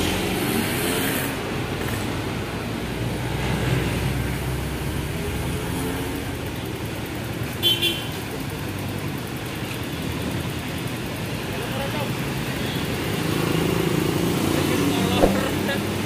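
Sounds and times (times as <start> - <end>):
passing road traffic rumble: 13.0 - 16.0.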